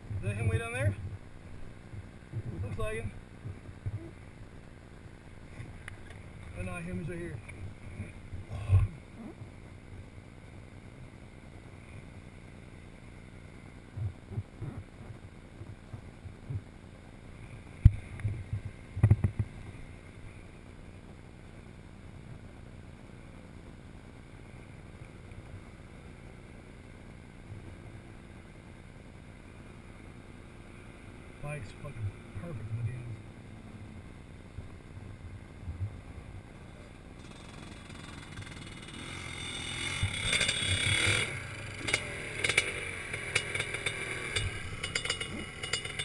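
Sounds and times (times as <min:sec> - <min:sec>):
wind buffeting microphone: 0:00.0 - 0:04.3, 0:17.8 - 0:19.6, 0:34.6 - 0:36.5.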